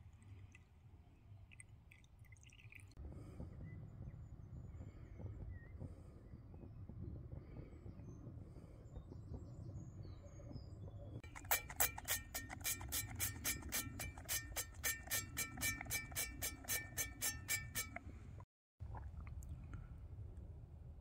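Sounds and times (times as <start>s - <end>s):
oil spray squirting into pan: 11.3s - 17.9s.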